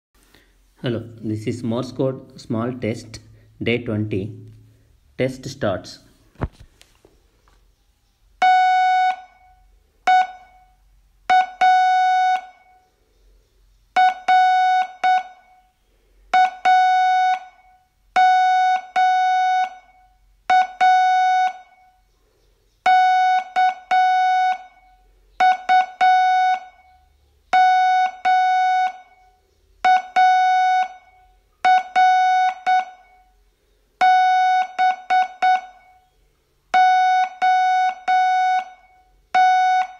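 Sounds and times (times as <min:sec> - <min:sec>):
morse code beeps: 0:08.4 - 0:10.7, 0:11.3 - 0:12.8, 0:14.0 - 0:15.6, 0:16.3 - 0:22.0, 0:22.8 - 0:33.3, 0:34.0 - 0:36.0, 0:36.8 - 0:39.9.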